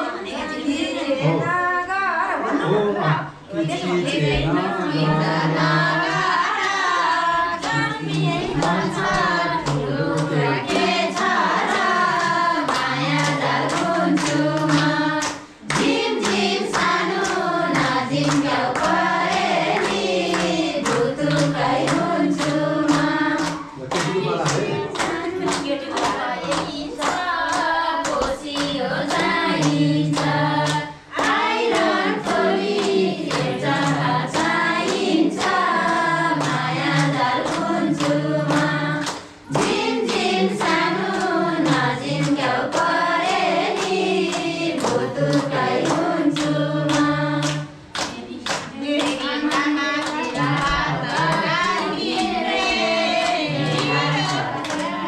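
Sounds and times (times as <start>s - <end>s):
women singing in unison: 0.0s - 55.0s
hand clapping: 7.5s - 55.0s.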